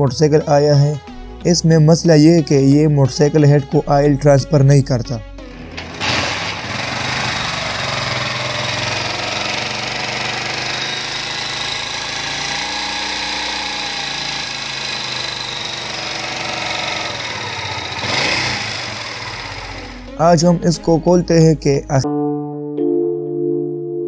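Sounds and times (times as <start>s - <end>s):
man talking: 0.0s - 5.3s, 20.1s - 22.1s
motorcycle engine idling: 5.6s - 20.2s.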